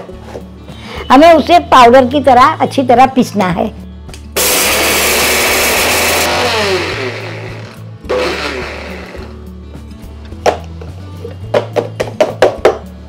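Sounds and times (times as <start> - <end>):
mixer grinder grinding spices: 4.4 - 9.4.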